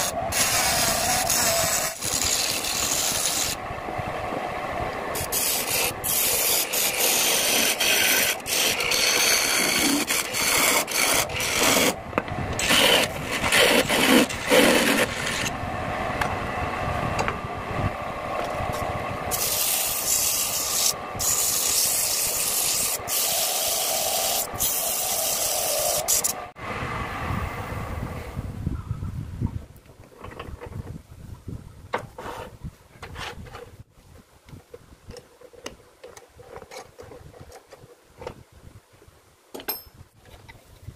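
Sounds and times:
chisel cutting wood on lathe: 0.0s - 3.6s, 5.1s - 12.0s, 12.6s - 15.5s, 19.3s - 26.4s.

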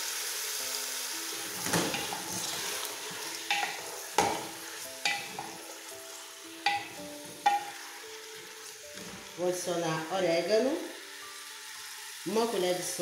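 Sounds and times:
chicken sizzling in oil: 0.0s - 13.0s
spoon knocking against pot: 3.5s - 5.6s, 6.6s - 7.8s.

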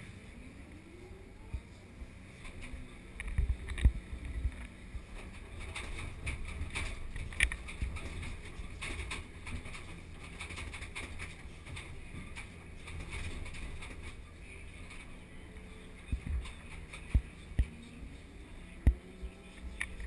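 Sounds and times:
excavator engine drone: 0.0s - 20.0s.

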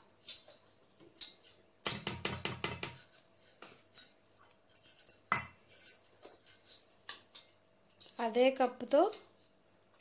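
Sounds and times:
cup knocking on steel bowl: 1.9s - 3.0s.

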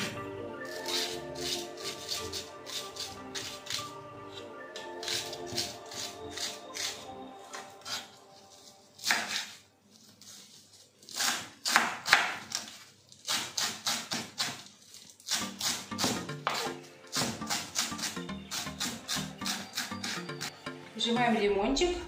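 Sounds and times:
light background music: 0.0s - 9.8s, 15.3s - 22.0s
knife chopping on wooden board: 11.2s - 12.6s.

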